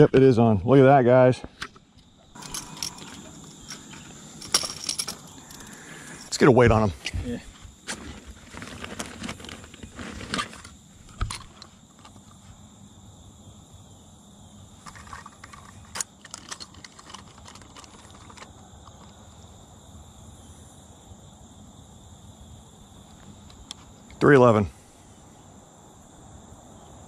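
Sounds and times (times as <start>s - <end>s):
fishing gear clicking and rattling: 1.6s - 6.4s, 7.9s - 12.4s, 14.8s - 19.3s.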